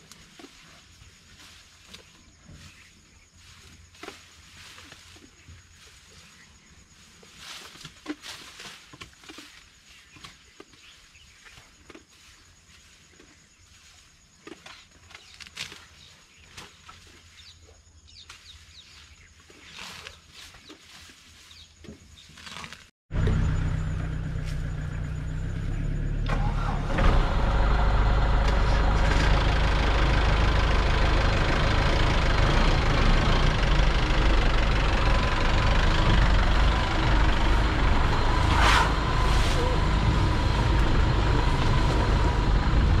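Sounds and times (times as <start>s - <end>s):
jeep engine running: 23.1s - 43.0s.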